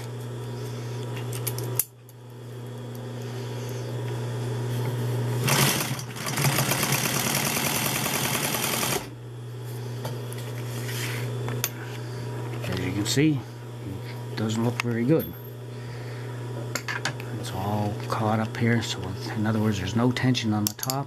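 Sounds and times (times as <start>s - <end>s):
sewing machine stitching: 5.4s - 9.1s
sewing machine motor humming: 5.4s - 9.2s.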